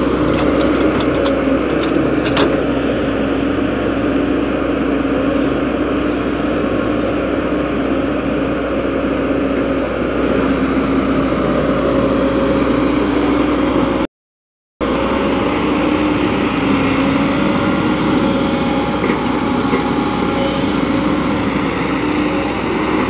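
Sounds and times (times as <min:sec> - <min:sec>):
excavator diesel engine running: 0:00.0 - 0:14.1, 0:14.8 - 0:23.0
constant hum: 0:14.8 - 0:23.0.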